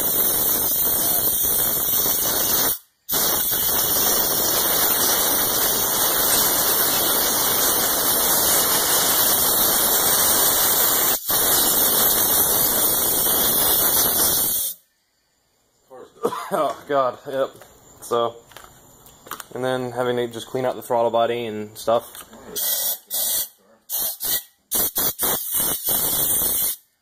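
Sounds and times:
compressed air hissing: 0.0s - 14.8s, 22.5s - 27.0s.

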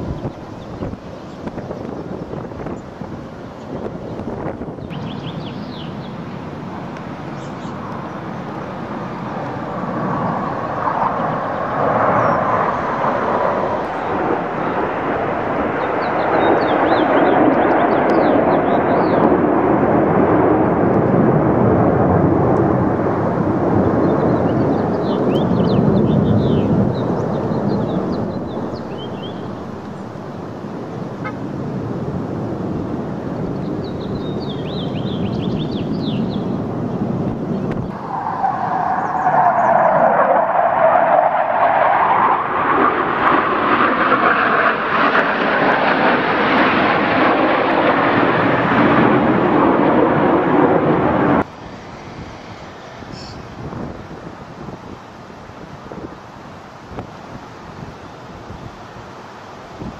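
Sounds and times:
jet roar overhead: 0.0s - 59.9s.

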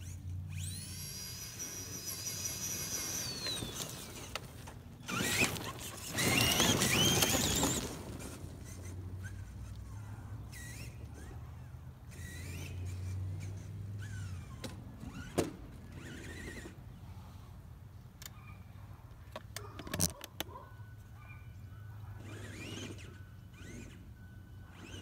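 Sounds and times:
electric motor whine: 0.0s - 16.8s, 22.2s - 25.0s.

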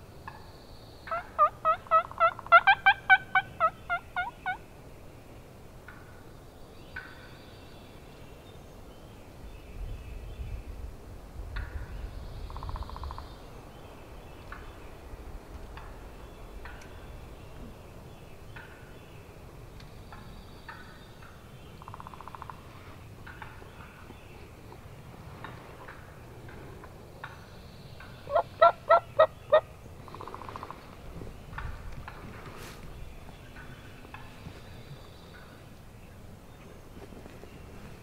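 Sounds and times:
turkey gobbling: 1.1s - 4.6s, 28.3s - 30.7s.

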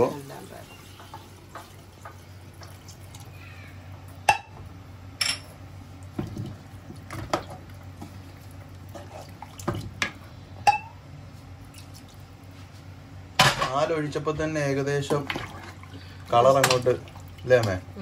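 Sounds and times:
spatula stirring: 7.0s - 10.0s.

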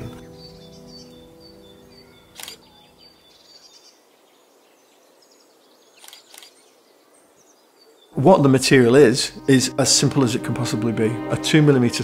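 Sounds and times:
soft background music: 0.0s - 3.4s, 8.2s - 12.0s
faint bird chirps: 0.0s - 8.2s.

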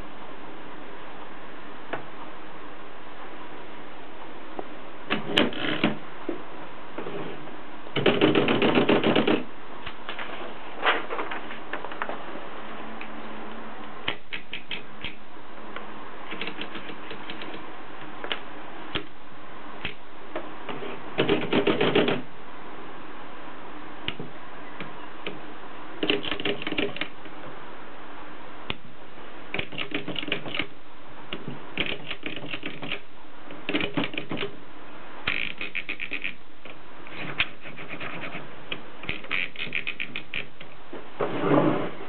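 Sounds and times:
typewriter platen ratcheting clicks: 8.0s - 9.5s, 16.3s - 17.6s, 21.2s - 22.2s, 26.0s - 27.1s, 29.5s - 30.7s, 31.8s - 33.0s, 33.6s - 34.5s, 35.3s - 36.4s, 39.0s - 40.7s.

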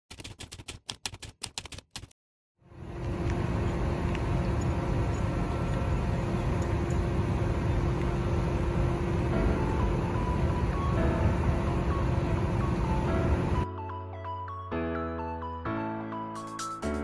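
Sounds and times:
diesel engine rumble: 2.7s - 13.6s
faint steady hum: 2.7s - 13.6s.

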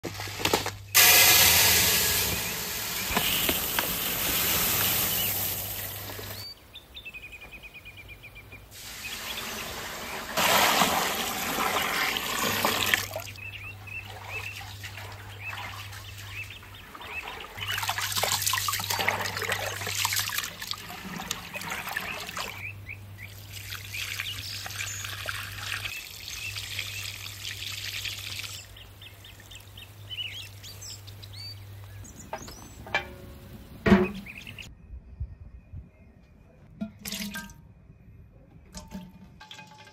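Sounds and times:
water pouring and splashing: 0.0s - 6.5s, 8.8s - 22.7s, 23.3s - 29.8s
water poured onto ground: 0.2s - 6.4s, 8.8s - 13.2s
birds chirping: 2.0s - 10.3s, 12.9s - 37.1s.

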